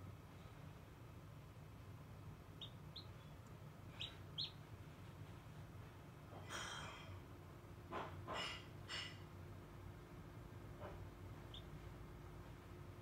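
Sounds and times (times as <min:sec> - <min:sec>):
low steady hum: 0:00.0 - 0:13.0
chick peeping: 0:02.5 - 0:04.7, 0:11.4 - 0:11.8.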